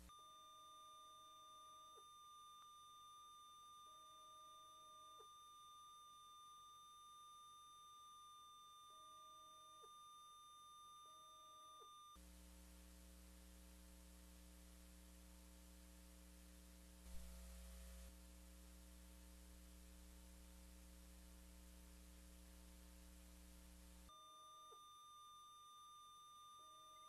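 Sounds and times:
faint electrical hum and hiss: 0:00.0 - 0:06.2, 0:11.7 - 0:27.0.

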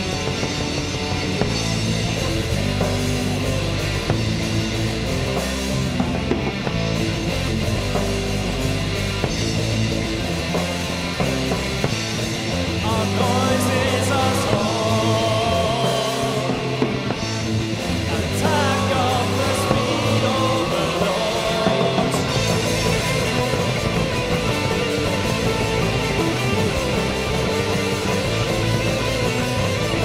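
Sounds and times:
distorted electric guitars riffing: 0:00.0 - 0:30.0
drums: 0:00.0 - 0:30.0.

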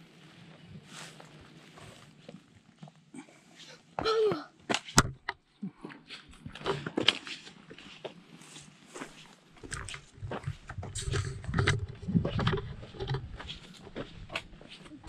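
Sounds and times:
footsteps on rocky trail: 0:06.2 - 0:15.0.

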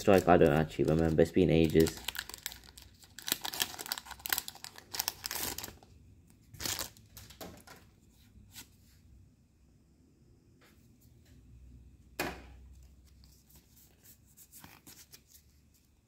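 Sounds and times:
cards rustling: 0:00.0 - 0:05.8, 0:12.8 - 0:15.9
foil wrapper crinkling: 0:00.0 - 0:05.8, 0:06.6 - 0:07.3.

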